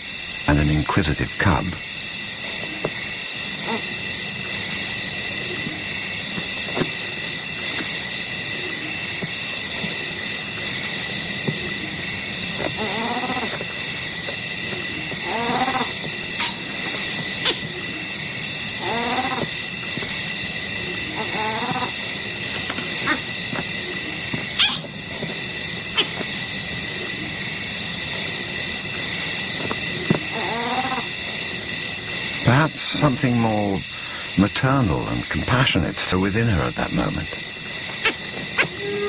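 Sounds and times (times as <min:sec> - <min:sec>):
insects trilling: 0:00.0 - 0:39.0
animal calls: 0:03.6 - 0:04.0, 0:12.6 - 0:13.7, 0:14.7 - 0:18.2, 0:18.8 - 0:19.6, 0:20.8 - 0:25.0, 0:25.9 - 0:26.3, 0:29.9 - 0:31.3, 0:38.0 - 0:39.0.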